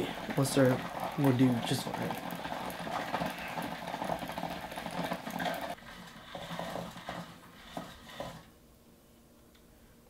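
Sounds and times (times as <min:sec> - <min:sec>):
fishing reel whirring: 0:00.0 - 0:07.3.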